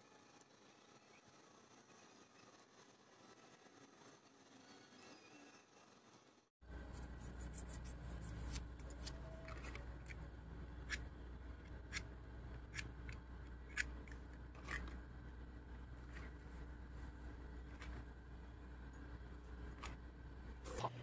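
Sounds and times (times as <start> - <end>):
faint low hum: 6.6 - 21.0.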